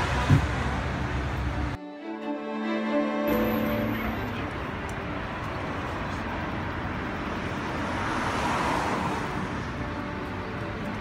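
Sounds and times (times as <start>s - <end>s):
road traffic passing: 0.0s - 11.0s.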